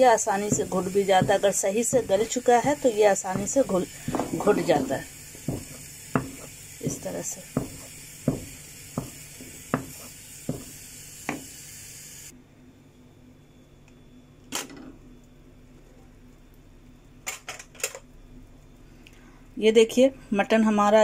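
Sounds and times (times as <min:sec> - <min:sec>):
simmering pan hiss: 0:00.0 - 0:12.4
wooden masher knocking in pan: 0:00.4 - 0:10.7.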